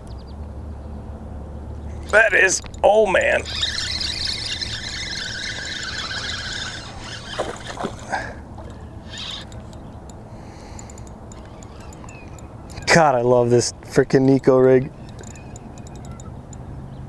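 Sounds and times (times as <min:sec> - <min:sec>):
low hum: 0:00.0 - 0:12.9
fishing reel gears whirring: 0:01.9 - 0:13.6, 0:14.2 - 0:16.6
fishing rod swishing: 0:02.1 - 0:09.7.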